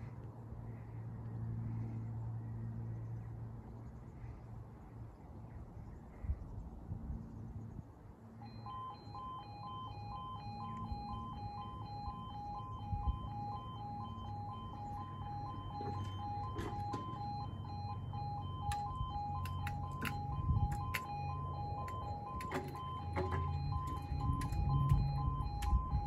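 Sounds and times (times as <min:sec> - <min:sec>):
low hum: 0:00.0 - 0:26.0
two-tone crossing alarm: 0:08.4 - 0:26.0
sharp clicks: 0:18.6 - 0:26.0.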